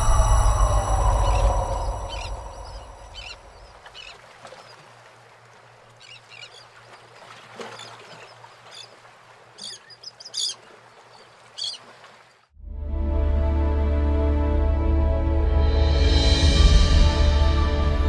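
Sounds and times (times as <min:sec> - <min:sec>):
low swell: 0:00.0 - 0:03.9
birds chirping: 0:01.0 - 0:12.4.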